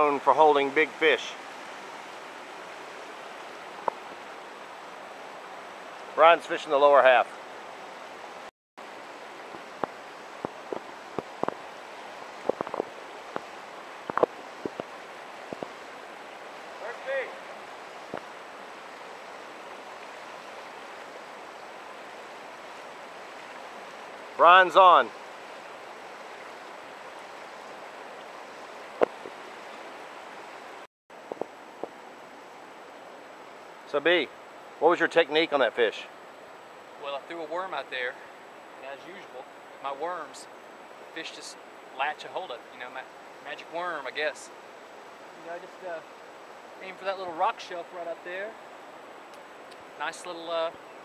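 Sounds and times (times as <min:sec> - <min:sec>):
river rushing over rocks: 0:00.0 - 0:35.0.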